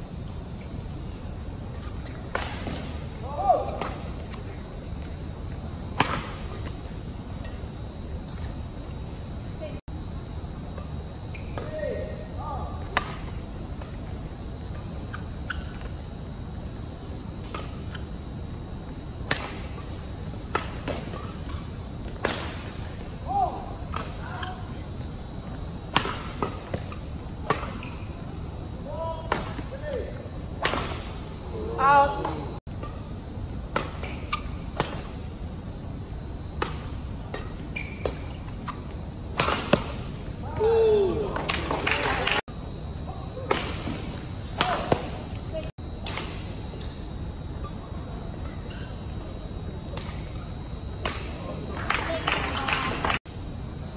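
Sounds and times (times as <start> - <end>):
rackets hitting shuttlecock: 1.7 - 4.1, 5.9 - 6.8, 12.8 - 14.0, 19.2 - 24.5, 25.9 - 28.1, 30.6 - 31.2, 39.3 - 40.8, 43.4 - 45.4.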